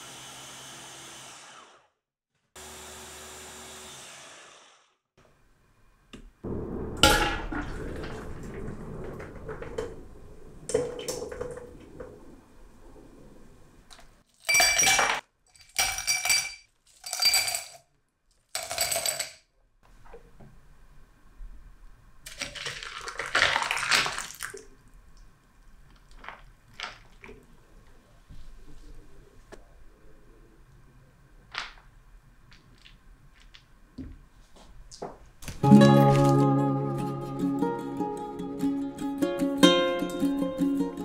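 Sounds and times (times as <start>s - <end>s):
loud knock: 6.4s - 12.1s
clatter: 6.5s - 14.2s
ice clinking on glass: 14.4s - 17.8s
lemonade pouring over ice: 22.3s - 24.8s.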